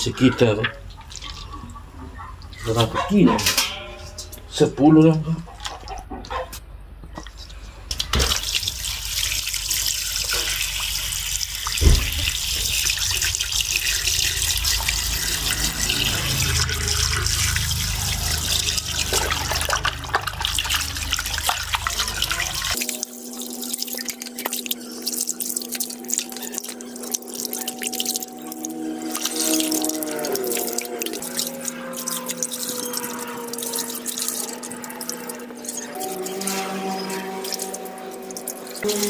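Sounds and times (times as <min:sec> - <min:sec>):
water pouring into steel bowl: 0:08.2 - 0:39.0
background music with held notes: 0:22.8 - 0:39.0.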